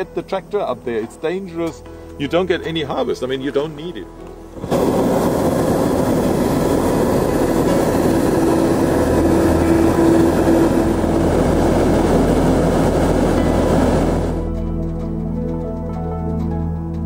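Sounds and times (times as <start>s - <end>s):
propane burner blast: 4.5s - 14.5s.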